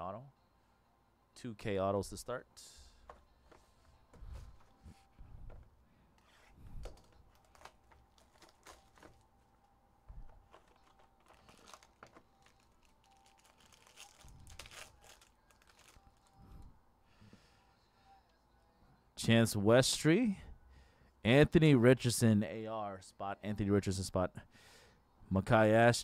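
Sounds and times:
foil wrapper crinkling and tearing: 6.8s - 9.2s, 10.3s - 16.3s.

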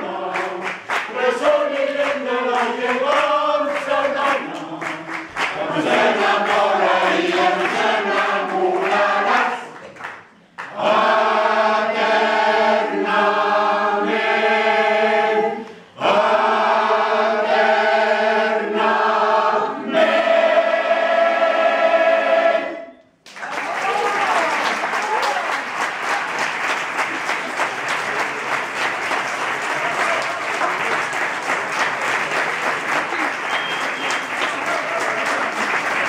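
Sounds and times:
mixed choir singing: 0.0s - 9.8s, 10.6s - 23.0s.

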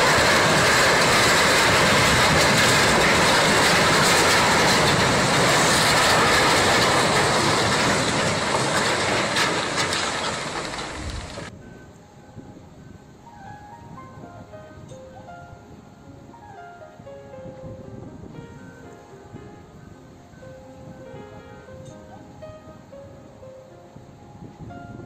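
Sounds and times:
steel hull grinding on shore: 0.0s - 11.5s.

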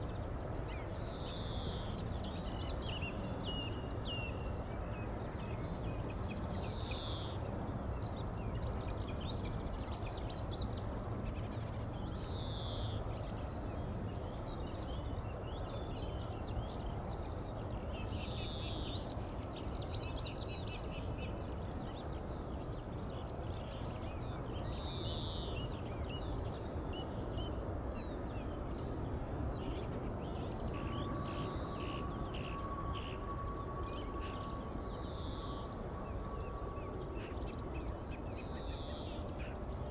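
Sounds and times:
low outdoor rumble: 21.2s - 39.9s
thin steady tone: 30.2s - 39.9s.

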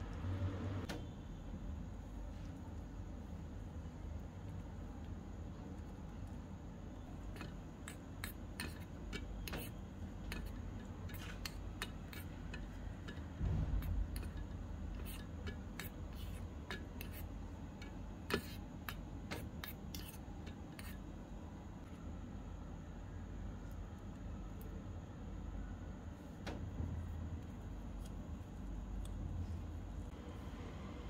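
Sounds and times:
metal spoon scraping small pan: 7.3s - 21.0s
dull bump: 13.4s - 14.2s.

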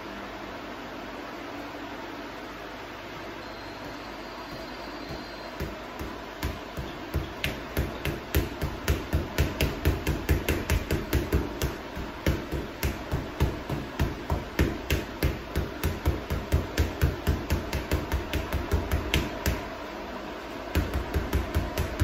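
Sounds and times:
fists punching heavy bag: 4.5s - 19.7s, 20.7s - 22.0s.

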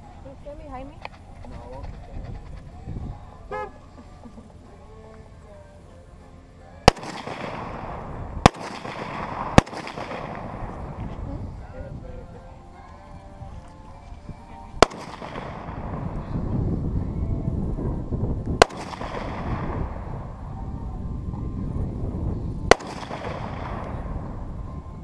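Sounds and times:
rifle shots with echo: 6.8s - 11.0s, 14.8s - 16.4s, 18.6s - 20.5s, 22.7s - 24.4s.

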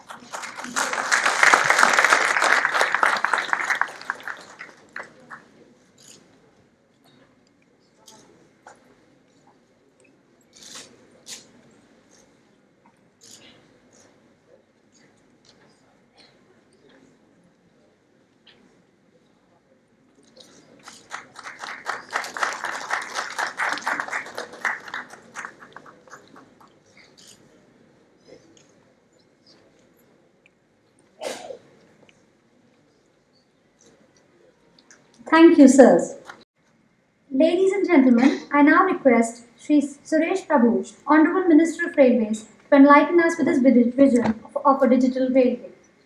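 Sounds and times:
audience applauding: 0.0s - 5.4s, 20.8s - 26.8s.

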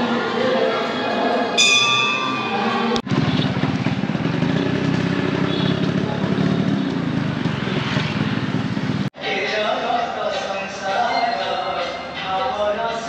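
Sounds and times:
street traffic noise: 0.0s - 13.0s
devotional singing: 9.2s - 13.0s.

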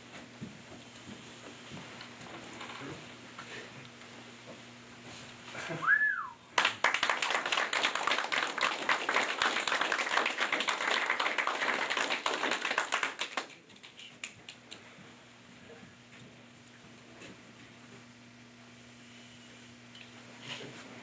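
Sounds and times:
audience applauding: 6.6s - 14.4s.

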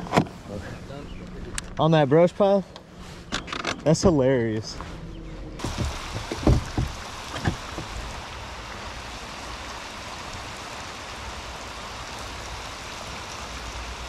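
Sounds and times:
dull knocks: 5.6s - 8.1s
rain falling on water: 5.6s - 14.0s.

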